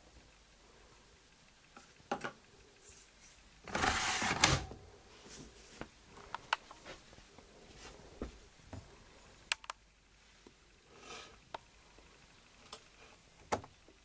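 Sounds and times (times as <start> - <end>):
plastic drawer sliding shut: 3.7 - 4.8.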